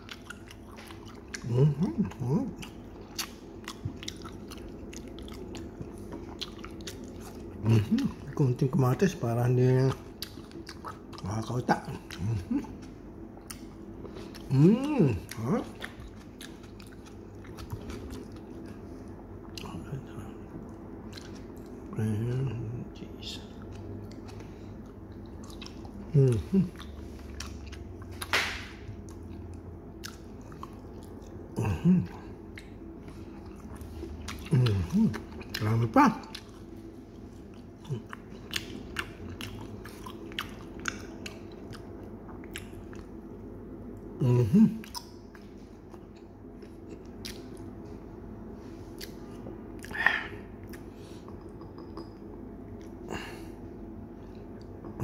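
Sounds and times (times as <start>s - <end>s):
chewing and biting food: 0.0s - 43.4s, 44.8s - 55.0s
steady low hum: 0.0s - 55.0s
soft mouth clicks: 49.8s - 52.2s.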